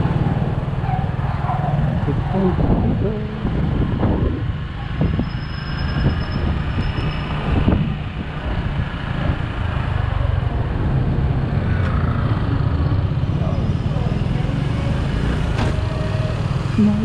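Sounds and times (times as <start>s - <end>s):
road and wind noise: 0.0s - 17.0s.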